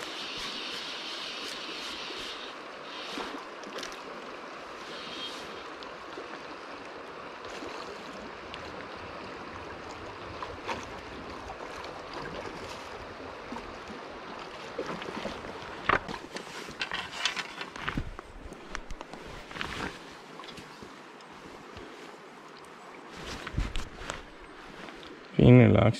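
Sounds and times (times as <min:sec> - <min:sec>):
river rushing over stones: 0:00.0 - 0:14.8.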